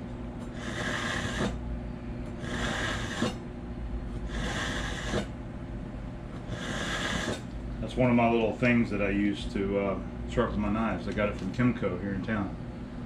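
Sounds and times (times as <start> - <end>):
knife scraping through sharpener: 0.5 - 1.6, 2.4 - 3.4, 4.3 - 5.3, 6.5 - 7.5.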